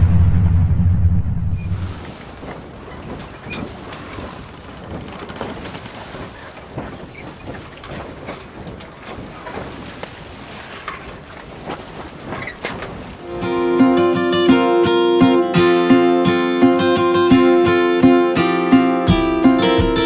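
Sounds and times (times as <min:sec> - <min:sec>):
wind noise on microphone: 0:00.0 - 0:13.2.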